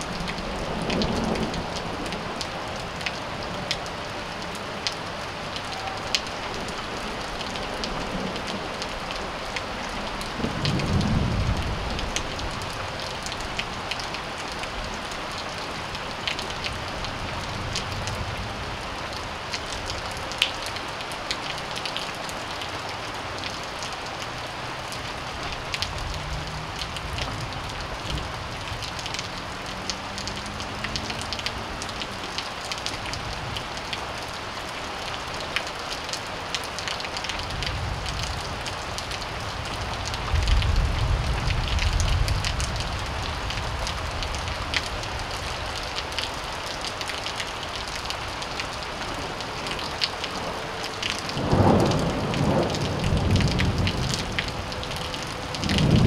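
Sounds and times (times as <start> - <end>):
steady rain falling: 0.0 - 56.0
thunder rumbling: 10.0 - 13.4, 51.2 - 56.0.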